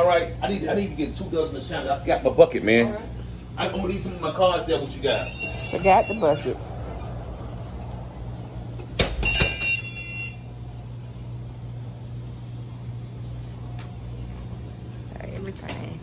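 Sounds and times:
steady low hum: 0.0 - 16.0
sharp ringing knocks: 9.0 - 10.0.

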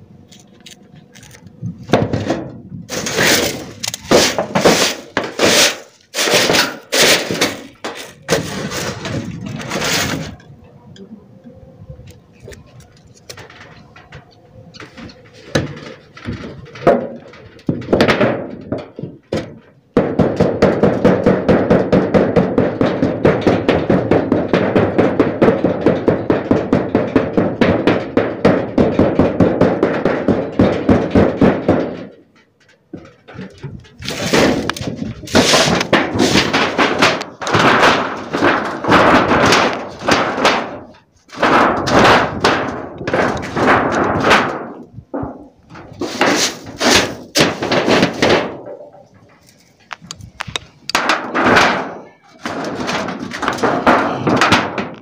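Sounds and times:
metal scrapes: 2.1 - 10.5, 33.3 - 44.5, 45.2 - 54.5
knocking on sheet metal: 16.9 - 32.1.

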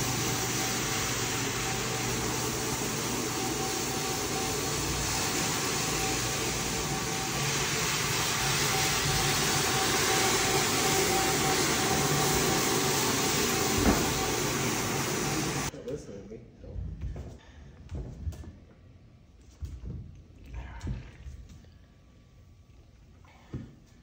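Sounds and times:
machine humming and rushing: 0.0 - 15.7.

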